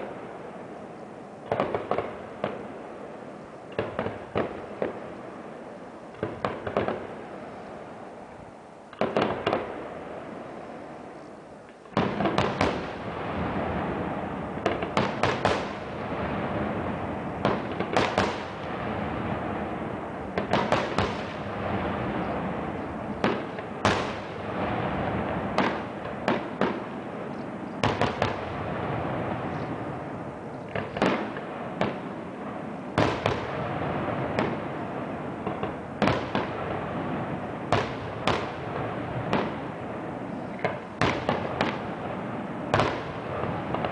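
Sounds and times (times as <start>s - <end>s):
steady wash of noise: 0.0s - 43.9s
firework shells bursting: 40.6s - 43.9s.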